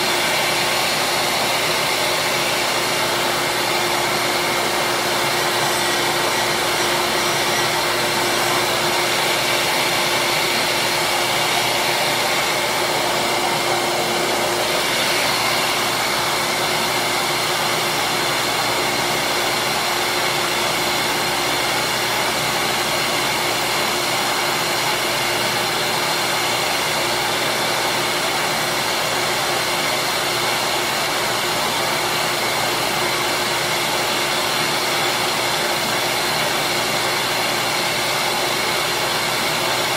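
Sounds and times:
bench grinder running: 0.0s - 39.9s.

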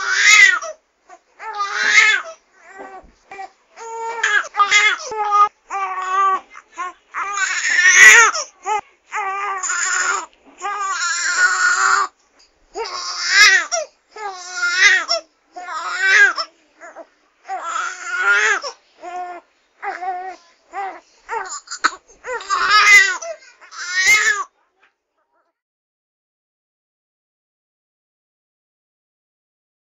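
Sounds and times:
baby crying: 0.0s - 12.2s, 12.8s - 24.5s.

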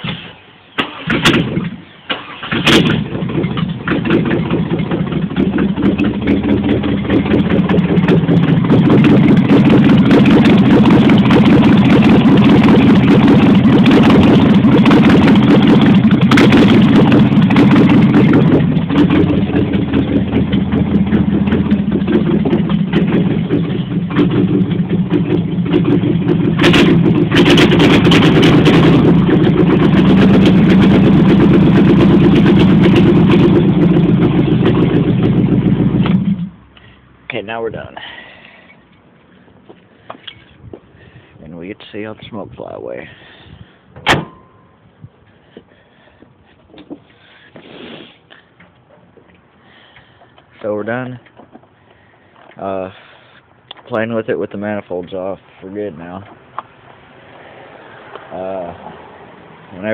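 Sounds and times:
unmuffled engine running loud: 2.6s - 36.6s.

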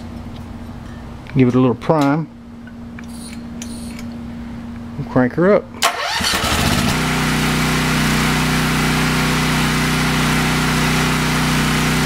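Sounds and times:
generator engine running: 5.8s - 12.0s.

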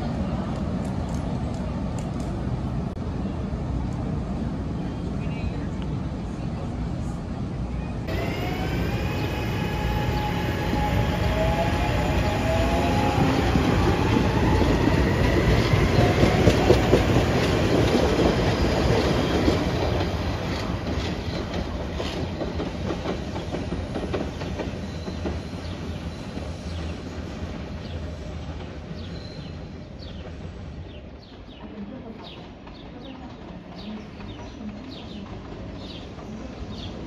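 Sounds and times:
train wheels clicking over rail joints: 13.1s - 27.0s.

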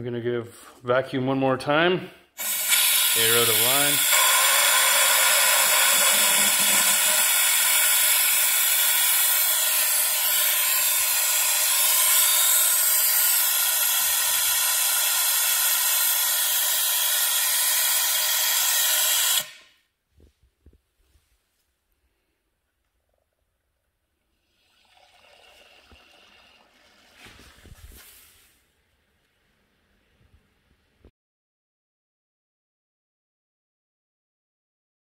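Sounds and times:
compressed air hissing: 2.4s - 19.6s.

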